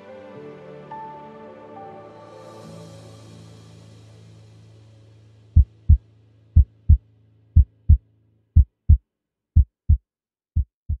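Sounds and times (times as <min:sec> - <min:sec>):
soft background music: 0:00.0 - 0:08.2
heartbeat thumps: 0:05.6 - 0:06.0, 0:06.6 - 0:07.0, 0:07.6 - 0:08.0, 0:08.6 - 0:09.0, 0:09.6 - 0:10.0, 0:10.6 - 0:11.0.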